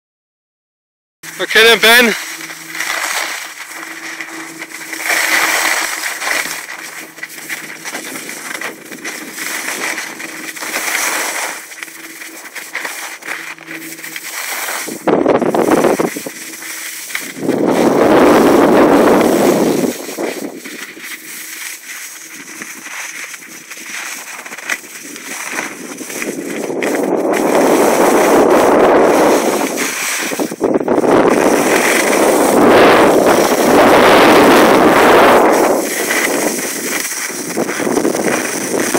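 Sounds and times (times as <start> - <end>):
skis scraping on snow: 1.2 - 38.9
wind on microphone: 14.7 - 21.3, 25.0 - 38.9.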